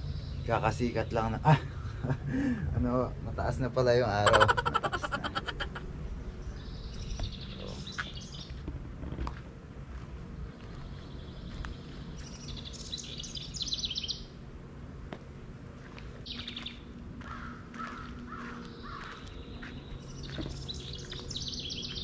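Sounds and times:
songbirds singing: 0.0s - 2.0s, 4.2s - 8.6s, 10.4s - 14.4s, 16.2s - 22.0s.

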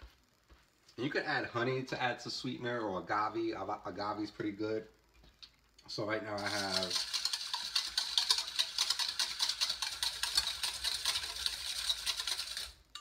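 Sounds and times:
wire whisk scraping metal bowl: 6.3s - 12.8s.

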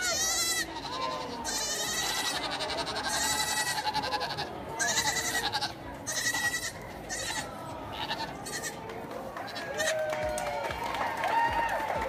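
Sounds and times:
goat bleating: 0.0s - 8.8s.

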